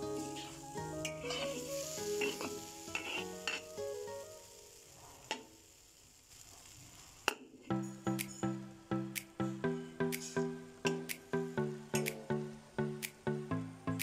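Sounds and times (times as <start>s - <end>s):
curry sizzling in a wok: 0.0s - 7.7s
metal spoon scraping a pan: 1.2s - 3.7s.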